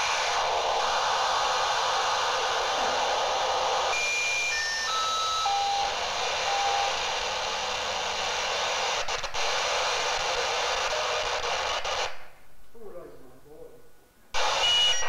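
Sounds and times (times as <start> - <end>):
shortwave radio hiss: 0.0 - 15.0
short steady whistles: 14.4 - 15.0.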